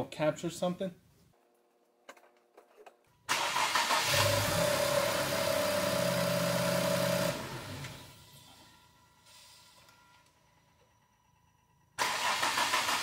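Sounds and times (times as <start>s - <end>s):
car starter cranking: 3.3s - 4.6s, 12.0s - 13.0s.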